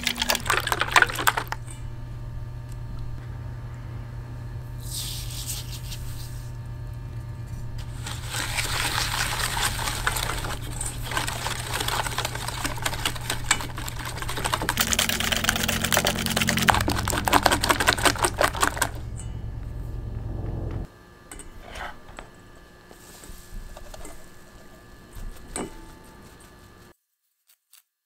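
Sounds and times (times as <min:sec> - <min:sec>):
sugar pouring into bowl: 0:07.9 - 0:18.9
whisk beating in metal bowl: 0:07.9 - 0:19.3.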